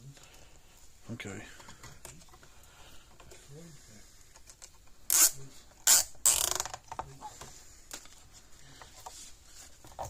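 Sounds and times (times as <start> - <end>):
cable tie ratcheting zip: 5.1 - 6.8.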